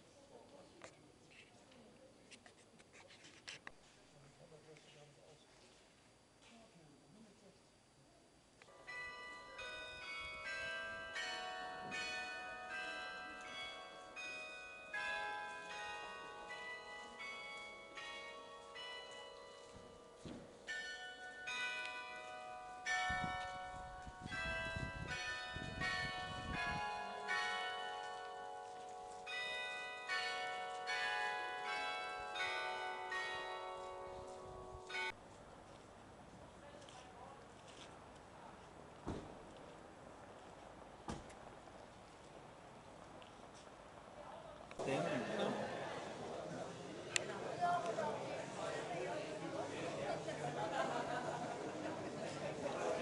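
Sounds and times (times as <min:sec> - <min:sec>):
church bells pealing: 0:08.7 - 0:35.2.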